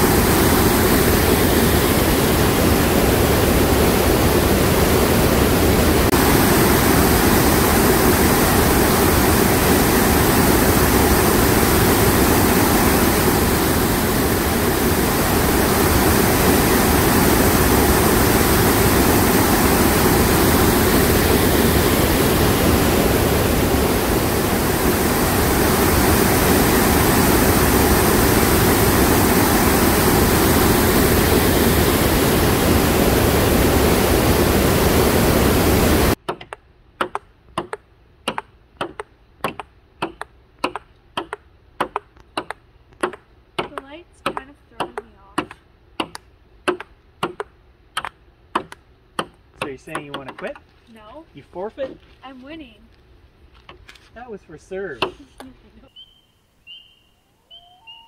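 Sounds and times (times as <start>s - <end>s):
river water rushing: 0.0s - 36.2s.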